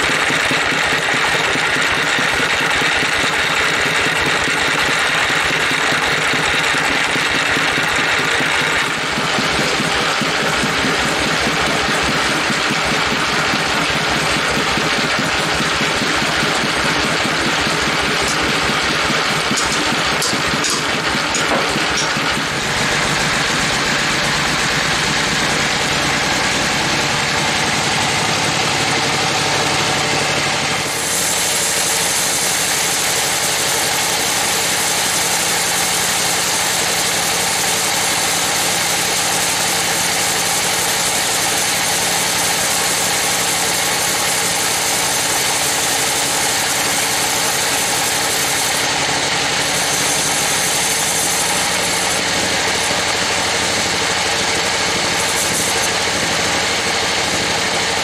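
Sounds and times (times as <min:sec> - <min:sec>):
sawmill machine drone: 0:00.0 - 0:58.0
saw blade cutting wood hiss: 0:30.8 - 0:40.5, 0:49.6 - 0:53.0, 0:55.0 - 0:56.2.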